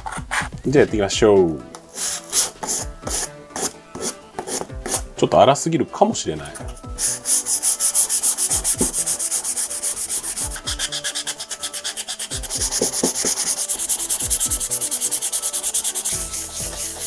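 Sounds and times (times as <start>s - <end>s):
hand sanding rasping strokes: 1.9s - 5.1s, 6.9s - 17.0s.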